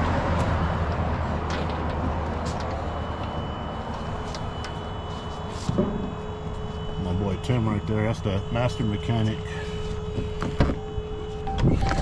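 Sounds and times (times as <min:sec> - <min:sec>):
faint high steady tone: 0:02.5 - 0:12.0.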